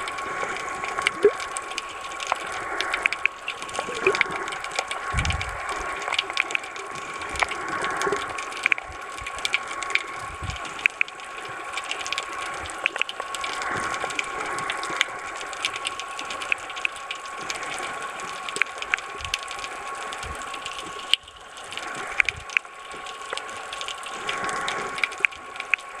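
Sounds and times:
sharp crackling clicks: 0.0s - 26.0s
underwater water noise: 0.0s - 26.0s.

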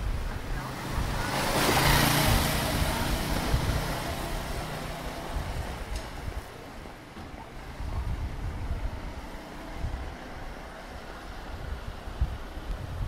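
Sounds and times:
city traffic hum: 0.0s - 13.0s
vehicle passing by: 0.4s - 6.0s.

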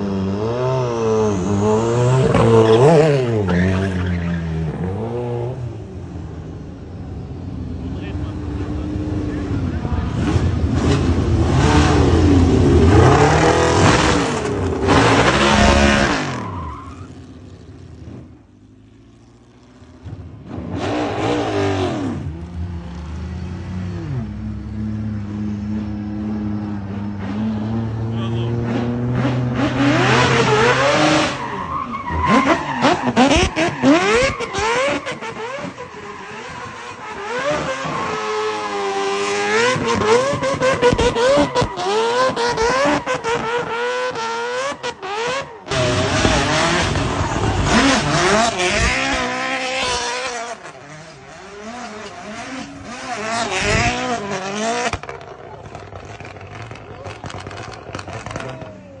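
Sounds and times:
car engines revving hard: 0.0s - 59.0s
tyres squealing and skidding: 1.0s - 5.2s, 11.5s - 17.6s, 25.6s - 59.0s.

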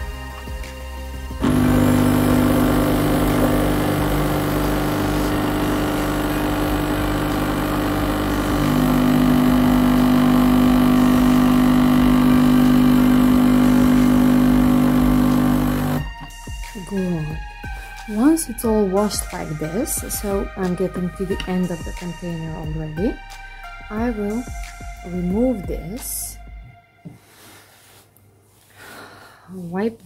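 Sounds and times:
coffee machine pump humming: 1.4s - 16.1s.

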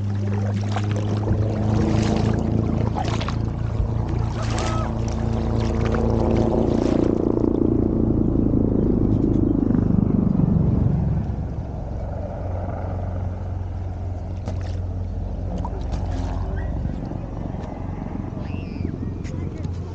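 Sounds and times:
small splashes: 0.0s - 7.6s, 14.2s - 17.2s
motorboat engine passing by: 0.0s - 19.9s.

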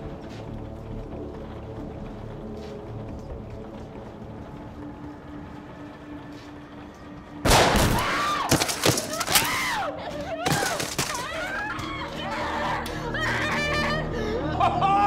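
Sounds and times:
gunshots: 7.4s - 9.4s
people shrieking and yelling: 8.0s - 15.0s.

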